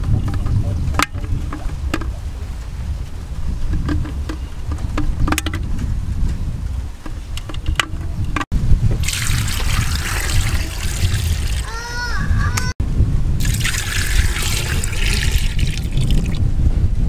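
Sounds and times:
coconut water pouring: 0:09.0 - 0:11.7, 0:13.4 - 0:16.4
steady low rumble: 0:12.2 - 0:17.0.

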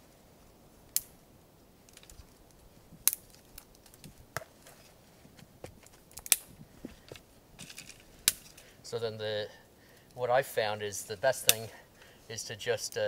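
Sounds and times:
dry twigs snapping: 0:00.9 - 0:01.2, 0:01.8 - 0:04.7, 0:05.8 - 0:08.6.

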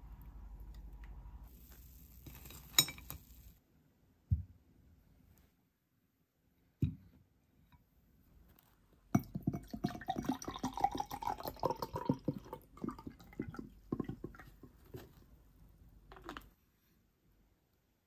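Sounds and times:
sparkling water pouring into cup: 0:00.8 - 0:03.6, 0:09.1 - 0:15.0.

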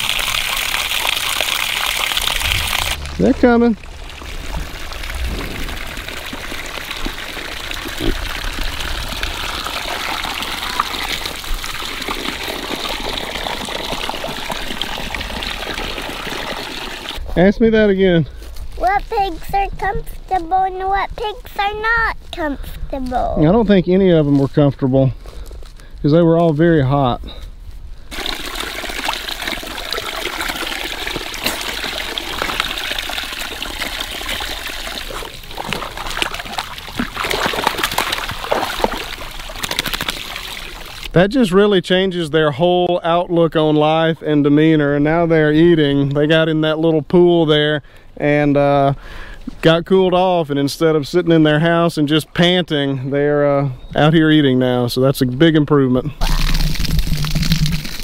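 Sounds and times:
small water splashes: 0:00.0 - 0:17.2, 0:28.1 - 0:41.2, 0:56.2 - 0:58.0
water running from a hose: 0:00.0 - 0:17.2, 0:28.1 - 0:41.1, 0:56.2 - 0:58.0.

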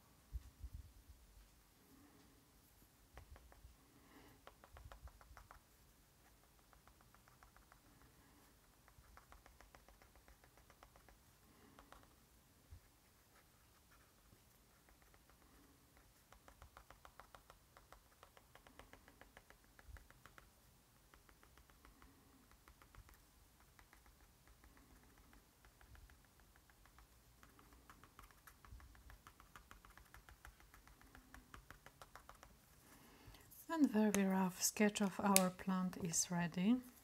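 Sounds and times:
pen tip tapping on paper: 0:04.4 - 0:05.6.

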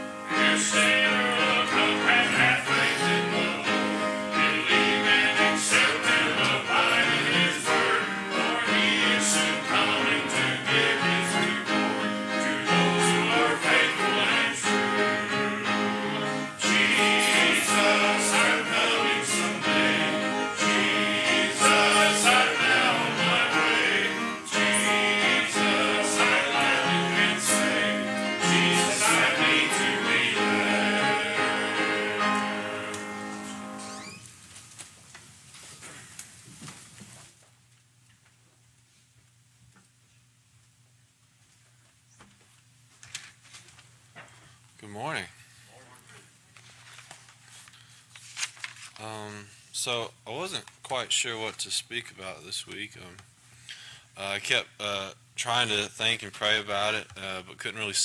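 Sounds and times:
gospel singing with instruments: 0:00.0 - 0:34.2.

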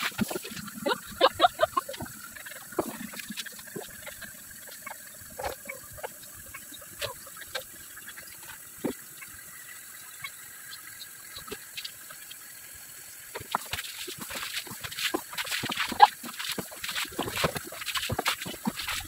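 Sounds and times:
water poured from a bowl: 0:00.0 - 0:19.0
water splashing: 0:00.0 - 0:19.0
rubbing wet fur: 0:13.4 - 0:19.0.

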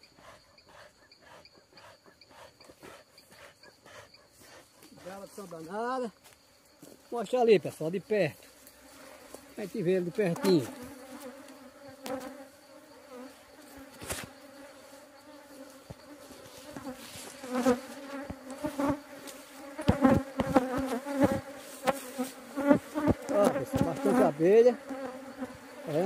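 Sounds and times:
bees buzzing: 0:08.6 - 0:26.0.

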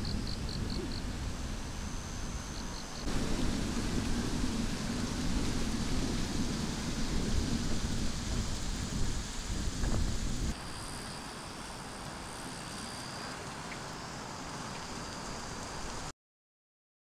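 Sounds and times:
wind rumbling on microphone: 0:00.0 - 0:10.8
distant traffic hiss: 0:00.0 - 0:16.1.

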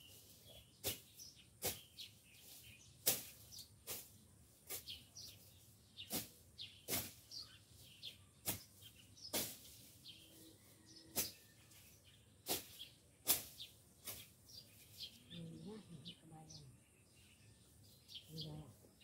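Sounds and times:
birds chirping faintly: 0:00.0 - 0:19.0
blade cutting through weeds: 0:00.2 - 0:05.4, 0:06.0 - 0:07.4, 0:08.4 - 0:10.0, 0:11.1 - 0:11.6, 0:12.4 - 0:14.4.

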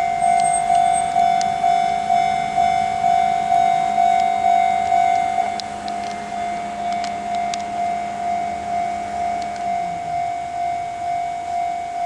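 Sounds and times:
level-crossing warning bell: 0:00.0 - 0:12.0
passing train drone: 0:00.0 - 0:12.0.

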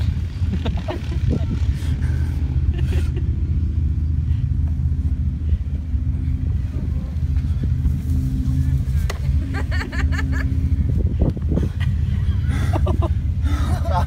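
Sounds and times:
engine running low rumble: 0:00.0 - 0:14.0.

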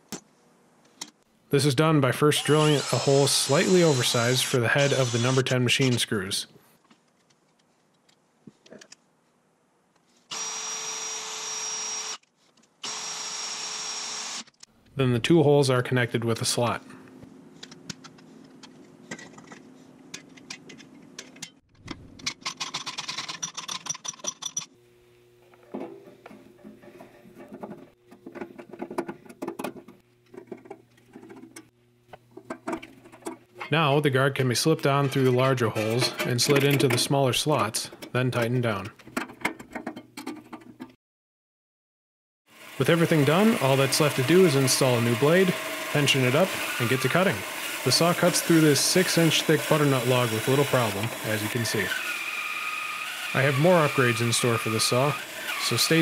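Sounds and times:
cordless drill drilling sheet metal: 0:02.3 - 0:05.6, 0:10.3 - 0:12.2, 0:12.8 - 0:14.6, 0:42.5 - 0:56.0.

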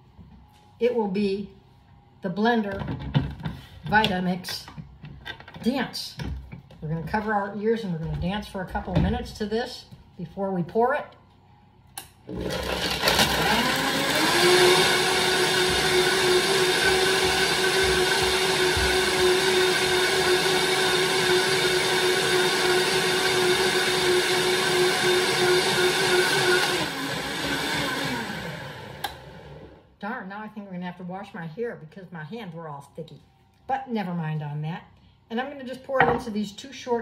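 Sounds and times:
blender motor whirring: 0:12.3 - 0:29.8.

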